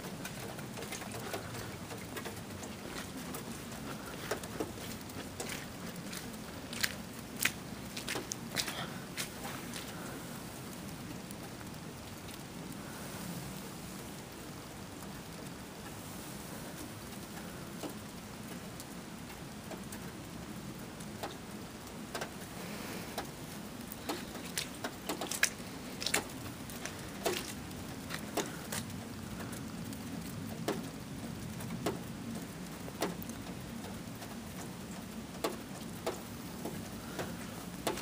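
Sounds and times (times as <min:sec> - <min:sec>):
low background noise: 0:00.0 - 0:38.0
snowflakes ticking: 0:22.2 - 0:30.9.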